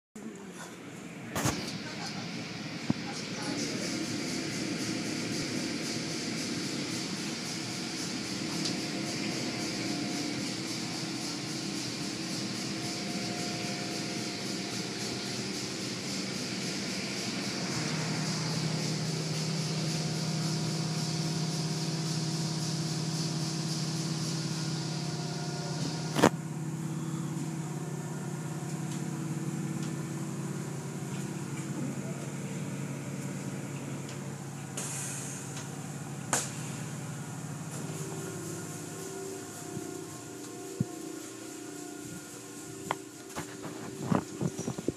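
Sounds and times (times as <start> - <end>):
car wash hiss and machinery hum: 0.3 - 44.9
cloth strips sweeping over car: 37.8 - 44.9.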